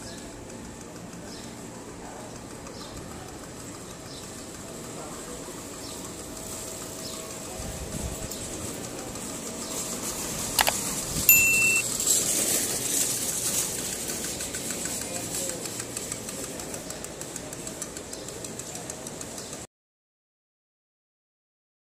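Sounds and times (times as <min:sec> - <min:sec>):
sharp click: 0:10.6 - 0:11.8
high beep: 0:11.3 - 0:11.8.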